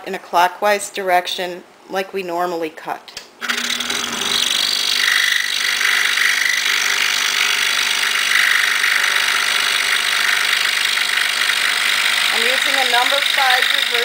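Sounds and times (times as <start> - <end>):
scroll saw cutting wood: 3.4 - 14.0.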